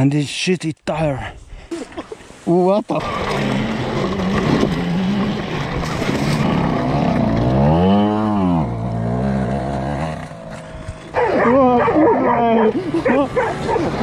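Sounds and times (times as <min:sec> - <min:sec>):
dirt bike engine revving: 0:03.0 - 0:14.0.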